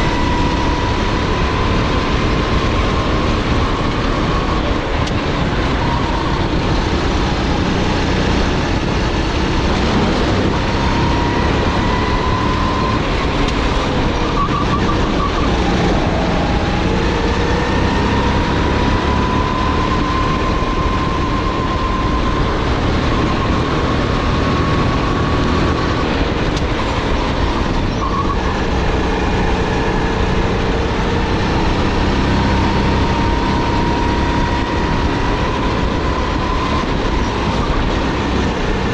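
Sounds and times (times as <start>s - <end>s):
dense rushing noise: 0.0s - 38.9s
kart engine running hard: 0.0s - 38.9s.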